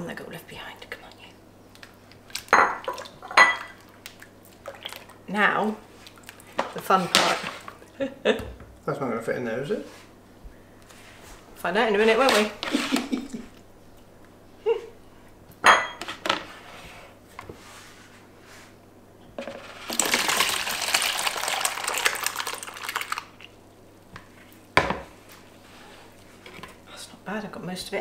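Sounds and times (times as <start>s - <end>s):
liquid pouring into tub: 2.3s - 5.2s, 19.6s - 23.6s.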